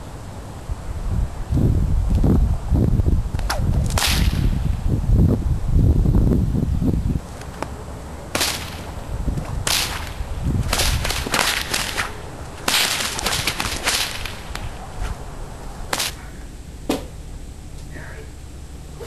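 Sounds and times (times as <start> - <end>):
whip cracks: 3.4 - 4.8, 8.3 - 14.8, 15.9 - 16.2.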